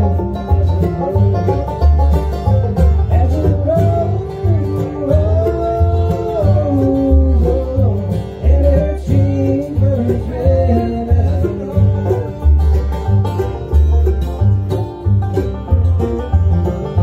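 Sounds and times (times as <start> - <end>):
bluegrass band playing: 0.0 - 17.0
upright bass beat: 0.0 - 17.0.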